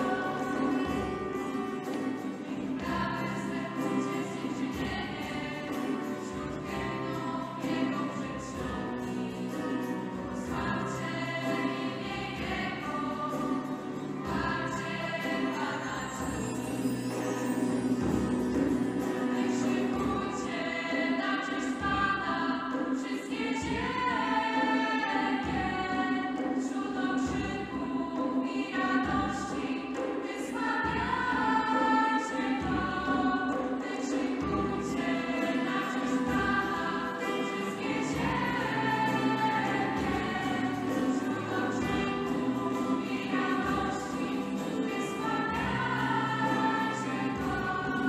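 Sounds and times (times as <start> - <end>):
vocal group singing in harmony: 0.0 - 48.0
instrumental accompaniment with beat: 16.2 - 20.7.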